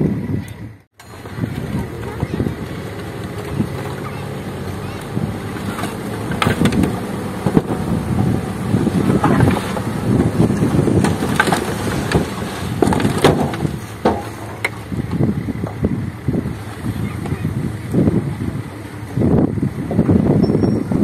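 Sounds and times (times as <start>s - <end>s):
diesel truck engine running: 0.0s - 21.0s
soil and rocks sliding: 1.0s - 19.2s
stones knocking: 9.1s - 14.8s.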